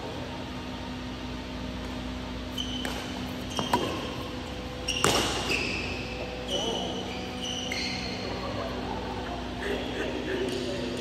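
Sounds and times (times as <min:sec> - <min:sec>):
shoes squeaking on court floor: 0:01.7 - 0:08.8
racket striking shuttlecock: 0:02.7 - 0:04.2, 0:05.0 - 0:05.6.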